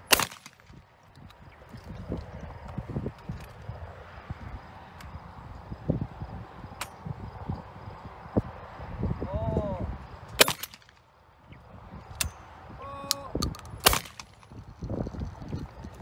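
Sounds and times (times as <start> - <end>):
shotgun shots: 0.0 - 0.8, 10.4 - 11.0, 13.8 - 14.4.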